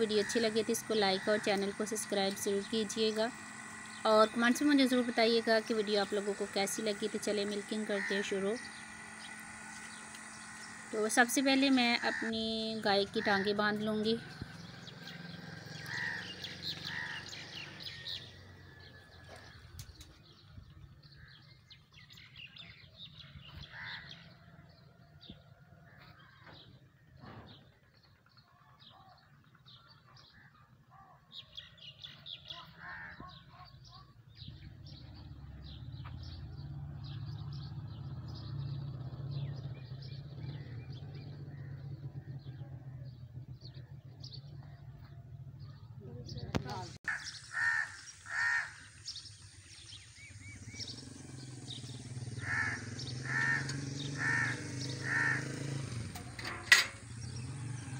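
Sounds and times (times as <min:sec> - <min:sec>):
small birds chirping: 0:00.0 - 0:57.9.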